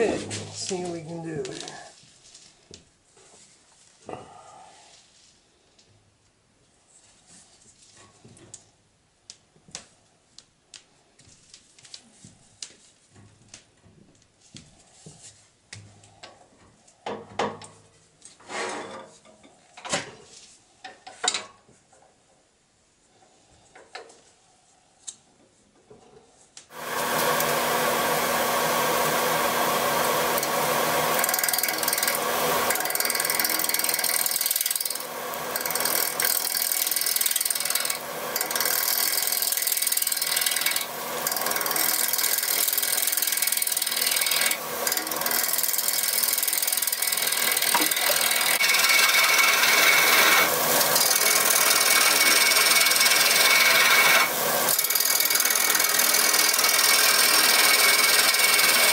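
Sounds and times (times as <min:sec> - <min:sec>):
lathe motor hum: 0:26.7 - 0:58.9
lathe tool shearing wood: 0:26.7 - 0:58.9.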